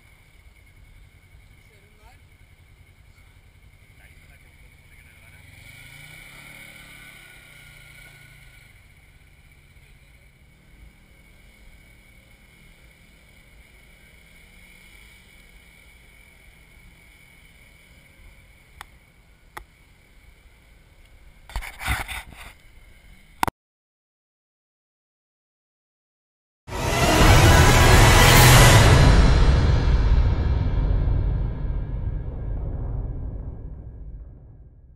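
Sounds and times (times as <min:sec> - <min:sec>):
engine running faintly: 0:00.0 - 0:21.5
faint steady outdoor hum: 0:00.0 - 0:23.5.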